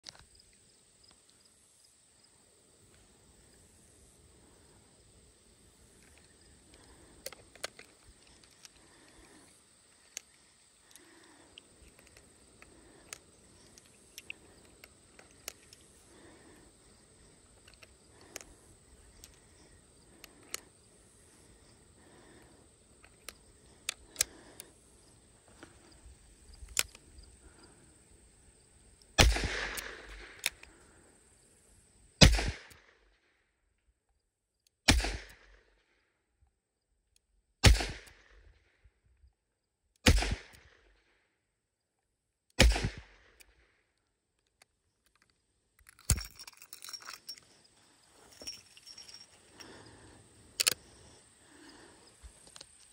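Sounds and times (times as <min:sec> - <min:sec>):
cartridges loading clicks: 0:23.0 - 0:24.7, 0:26.6 - 0:27.0, 0:29.2 - 0:30.8, 0:44.5 - 0:47.4, 0:50.5 - 0:50.9
spent cases ejected clatter: 0:45.8 - 0:47.6.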